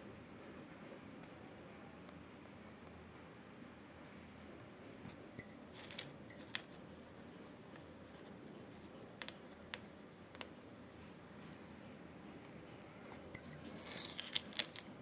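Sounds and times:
pottery shards clinking: 0:05.4 - 0:06.9, 0:08.0 - 0:09.9, 0:13.3 - 0:14.9.

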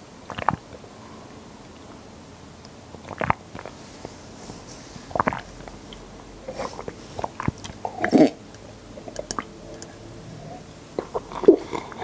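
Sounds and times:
chewing and swallowing noises: 0:00.3 - 0:00.8, 0:02.9 - 0:03.8, 0:05.1 - 0:12.0.

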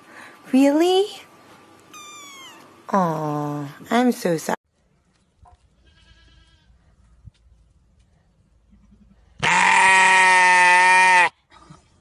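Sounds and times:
sheep bleating: 0:05.8 - 0:06.7, 0:09.4 - 0:11.4.

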